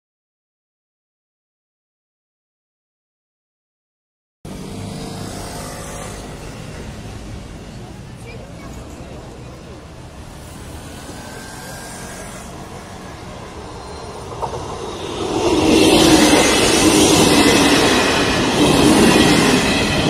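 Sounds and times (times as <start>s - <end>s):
train wheels on rails: 4.5s - 20.0s.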